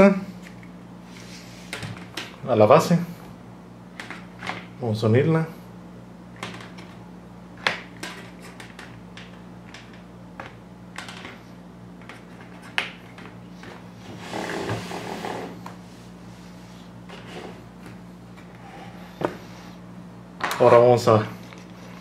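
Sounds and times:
plastic scraping across table: 0:14.0 - 0:15.6.

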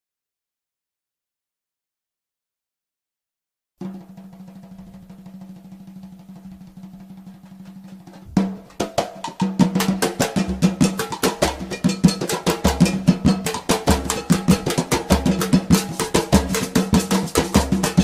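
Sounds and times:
fast drumming: 0:03.8 - 0:18.0.

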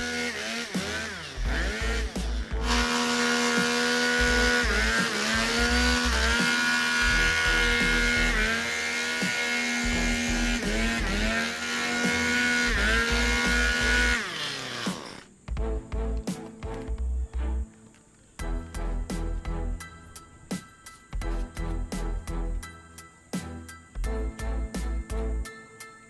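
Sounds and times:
leaf blower running: 0:00.0 - 0:15.4.

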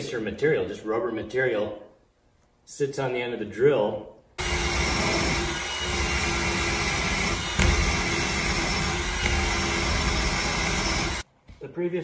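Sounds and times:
cordless drill motor whine: 0:04.4 - 0:11.2.

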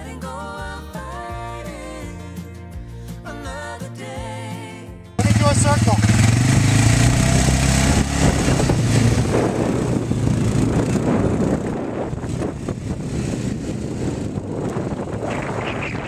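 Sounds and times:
quad bike engine running: 0:05.2 - 0:16.0.

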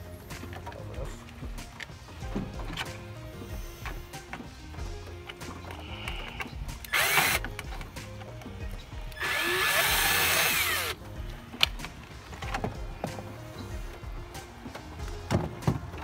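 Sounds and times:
cordless drill motor spinning: 0:05.9 - 0:07.5, 0:09.1 - 0:11.0.

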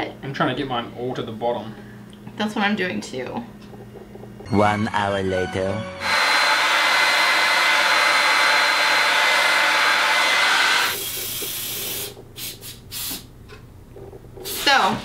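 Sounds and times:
hair dryer blowing: 0:06.0 - 0:11.0.

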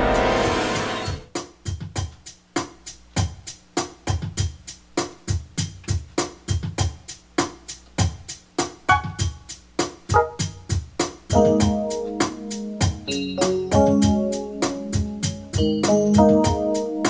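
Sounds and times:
drum beat: 0:01.5 - 0:13.1
held keyboard notes: 0:08.9 - 0:09.4, 0:10.1 - 0:17.0.

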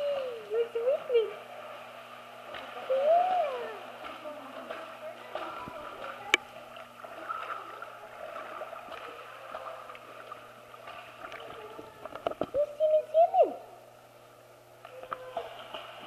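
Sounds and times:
dog splashing in pool: 0:02.4 - 0:06.3.

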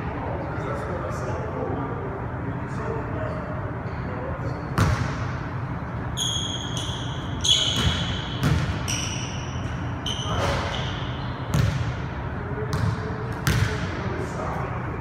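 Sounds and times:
sneaker squeaks: 0:05.9 - 0:12.0
basketball bouncing on hardwood floor: 0:07.8 - 0:08.8, 0:11.5 - 0:11.9, 0:12.7 - 0:13.7.

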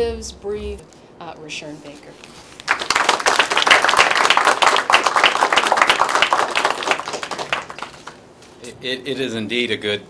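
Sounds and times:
audience applauding: 0:02.6 - 0:08.2.

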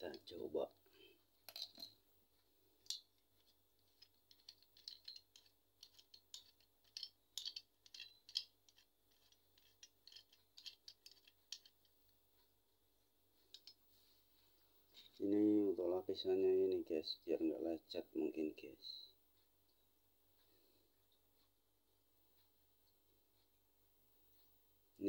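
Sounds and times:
metal phone holder clicks and rattles: 0:01.5 - 0:02.0, 0:03.9 - 0:11.8.

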